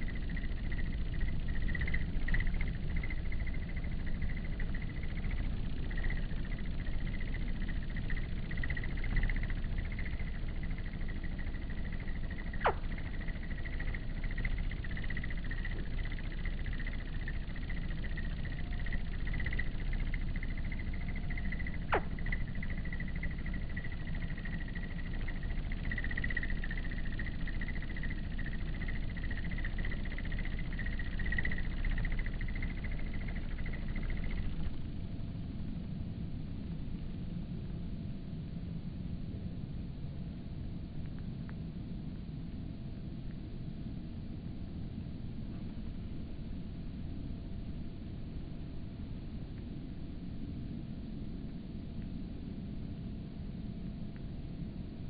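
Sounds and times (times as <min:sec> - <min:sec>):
downward-sweeping chirps: 0:00.0 - 0:34.9
insect chirring: 0:00.0 - 0:37.4, 0:44.9 - 0:55.0
low outdoor rumble: 0:00.0 - 0:55.0.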